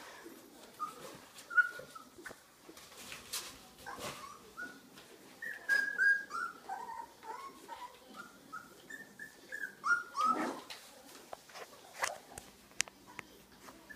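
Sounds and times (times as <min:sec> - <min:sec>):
puppies whimpering: 0:00.7 - 0:02.3, 0:05.4 - 0:10.7.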